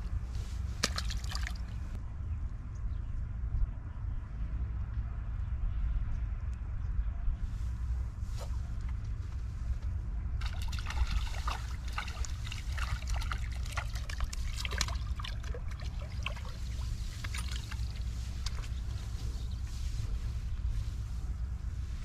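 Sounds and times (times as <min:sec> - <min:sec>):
wind rumble on microphone: 0:00.0 - 0:22.0
fish splashing at water surface: 0:00.8 - 0:01.7, 0:10.4 - 0:18.6.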